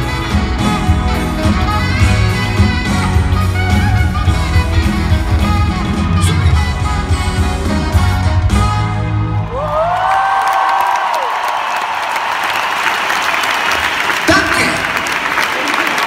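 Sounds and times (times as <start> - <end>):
saxophone: 0.0 - 9.6
live pop band playing: 0.0 - 9.9.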